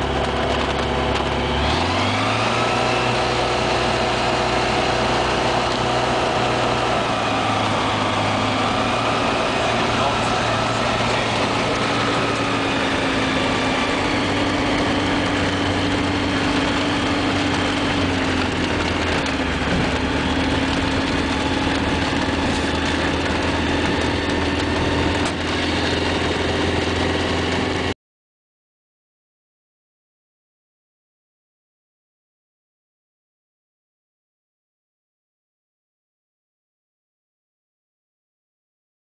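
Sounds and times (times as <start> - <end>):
light aircraft engine and propeller: 0.0 - 28.0.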